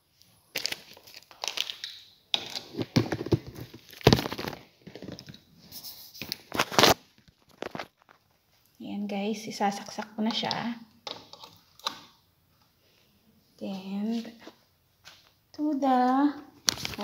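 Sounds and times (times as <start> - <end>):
objects rustling and knocking: 0.5 - 8.7.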